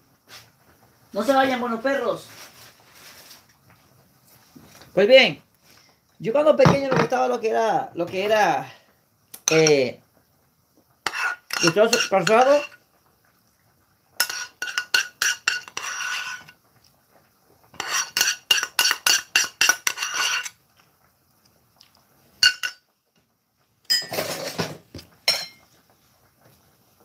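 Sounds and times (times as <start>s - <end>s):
metal spoon clinking on frying pan: 11.1s - 12.8s, 14.2s - 16.0s, 17.8s - 20.5s, 22.4s - 22.8s, 25.3s - 25.6s.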